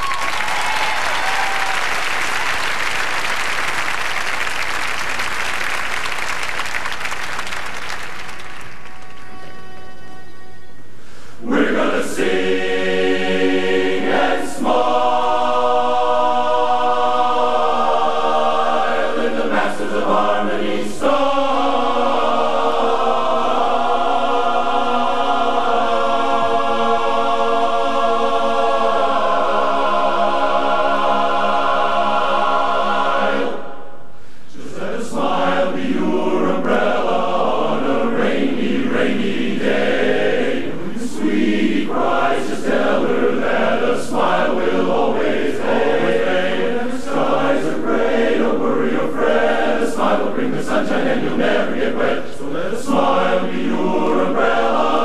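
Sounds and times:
male chorus singing a cappella: 11.4s - 55.0s.

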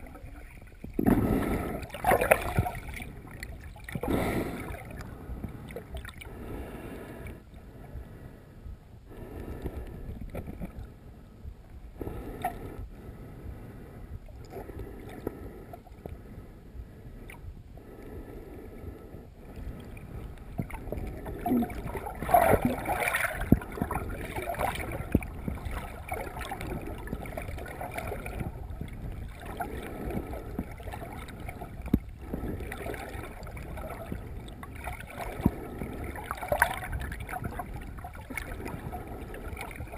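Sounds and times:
splashing: 0.0s - 5.0s, 20.6s - 28.6s
underwater water sloshing: 0.0s - 39.9s.

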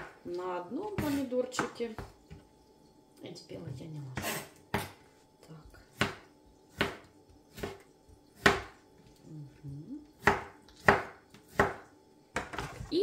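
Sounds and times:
knife chopping on cutting board: 0.8s - 2.1s, 4.2s - 5.0s, 5.9s - 7.8s, 8.4s - 8.8s, 10.2s - 12.8s.

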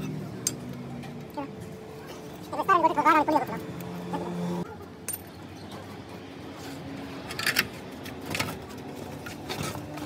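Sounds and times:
metal tools clinking: 5.0s - 5.4s.

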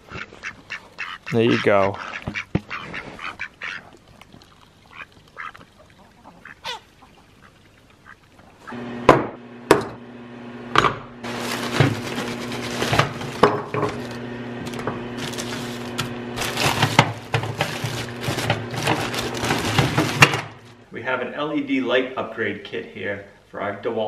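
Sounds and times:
ducks quacking: 0.0s - 4.0s, 4.9s - 8.8s
plastic bags crinkling: 11.2s - 20.8s.

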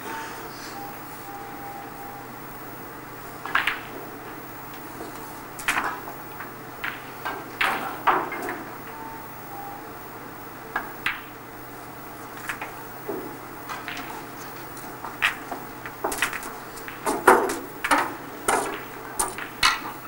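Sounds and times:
low hum: 0.0s - 17.0s
snooker balls clicking: 3.3s - 9.3s, 10.7s - 11.5s, 12.1s - 20.0s.

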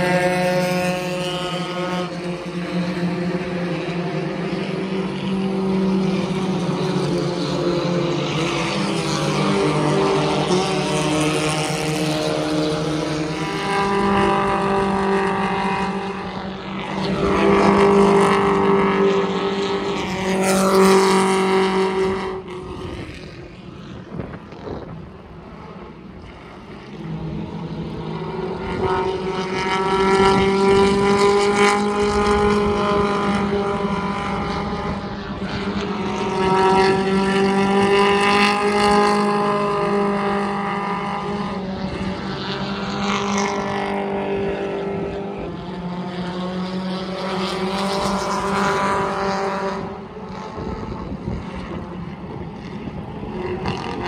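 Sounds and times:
race cars passing at speed: 0.0s - 54.0s.

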